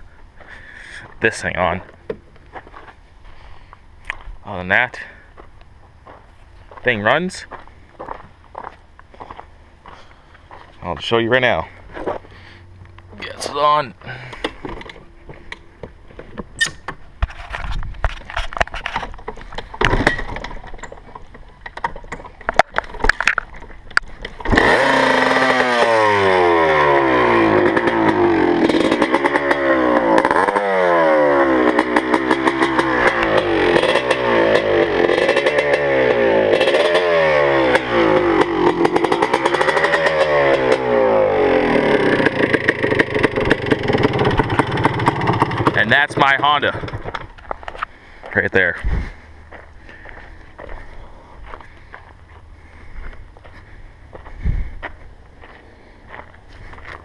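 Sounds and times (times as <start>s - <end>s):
motorcycle engine revving: 24.2s - 47.4s.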